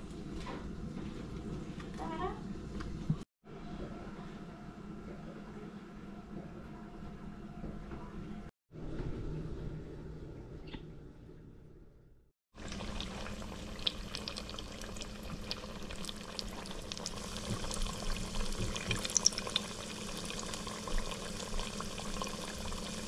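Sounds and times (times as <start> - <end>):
oil crackling and popping: 12.6 - 23.0
pie sizzling in hot oil: 12.6 - 23.0.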